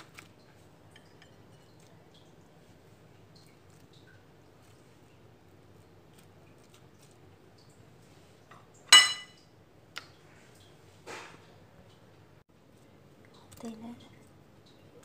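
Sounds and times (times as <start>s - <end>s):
glass baking dish clinking: 8.9s - 9.4s.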